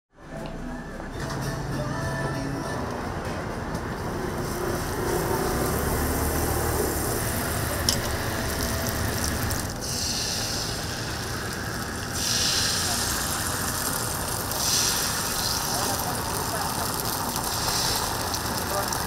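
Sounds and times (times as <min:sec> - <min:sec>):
food sizzling on griddle: 0:04.3 - 0:19.0.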